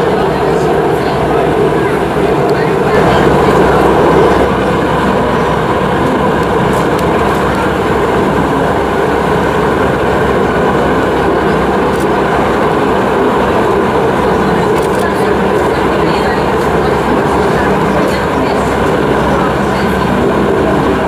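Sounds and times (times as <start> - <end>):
helicopter hovering rumble: 0.0 - 21.0.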